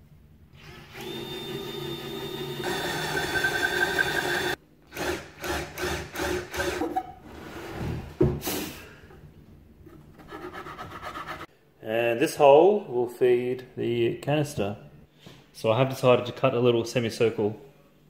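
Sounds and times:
power drill boring through wood: 0.6s - 6.9s.

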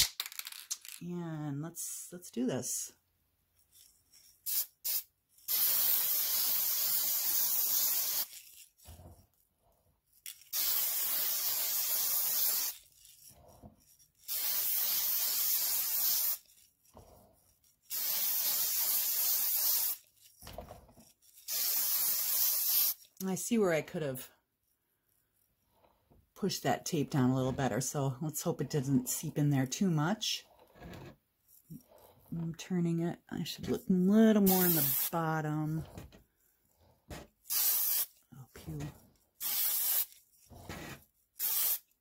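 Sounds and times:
spray paint hissing: 3.7s - 8.8s, 10.1s - 16.9s, 17.7s - 20.4s, 21.0s - 23.3s, 34.4s - 35.2s, 37.4s - 40.6s, 41.3s - 42.0s.

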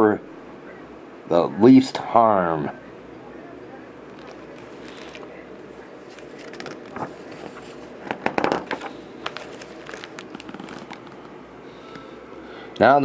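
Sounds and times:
paper pages rustling: 4.1s - 11.3s.

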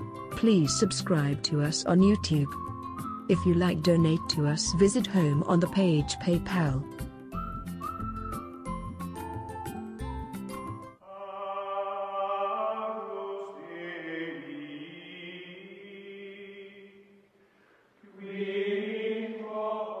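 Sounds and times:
chant-like choral voices: 11.0s - 17.2s, 18.0s - 20.0s.

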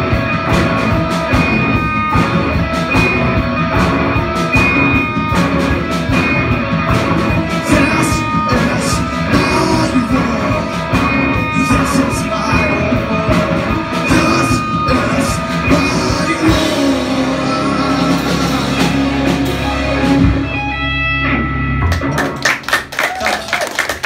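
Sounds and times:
live heavy metal band: 0.0s - 24.0s
audience clapping: 21.8s - 24.0s.

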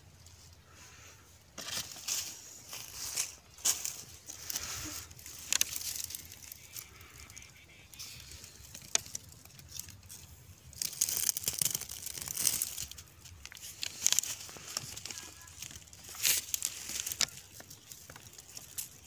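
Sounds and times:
dry leaves rustling and crackling: 0.1s - 19.0s
stems snapping: 3.2s - 7.4s, 8.0s - 19.0s.

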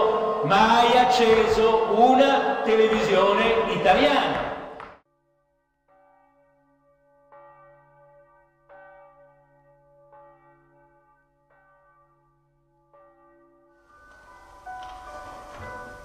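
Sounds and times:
bell tolling: 0.0s - 4.6s.

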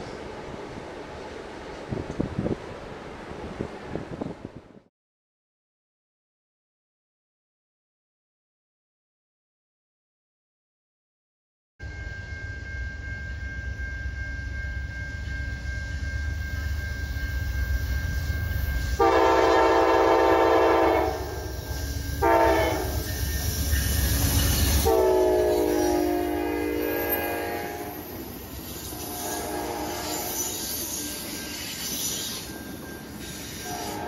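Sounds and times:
diesel locomotive rumble: 13.3s - 34.0s
train horn blasts: 18.9s - 23.2s, 24.6s - 28.1s, 28.8s - 31.3s, 33.3s - 34.0s
train wheel clatter: 21.2s - 26.0s.

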